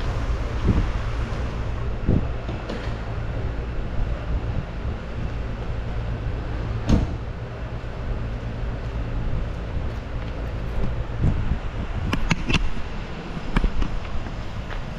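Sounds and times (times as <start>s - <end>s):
car door shutting: 6.8s - 7.2s.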